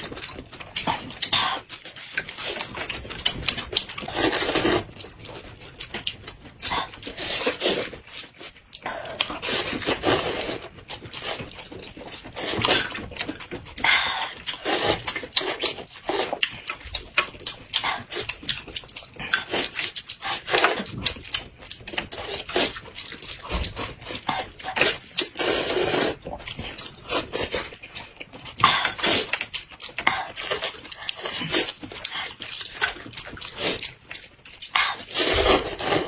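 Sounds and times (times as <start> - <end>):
chewing: 0.0 - 36.0
noodles slurped: 4.0 - 5.0, 9.2 - 11.5, 13.8 - 16.7, 22.0 - 34.0, 34.6 - 36.0.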